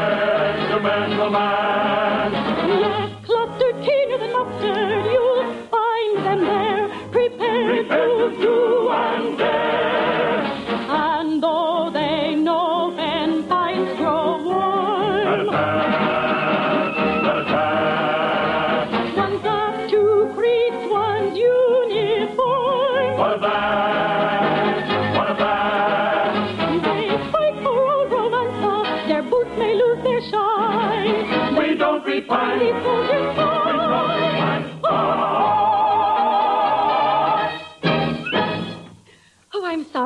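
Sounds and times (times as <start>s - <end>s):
operetta singers with vibrato: 0.0s - 38.7s
orchestra playing: 14.1s - 20.1s, 35.9s - 39.0s.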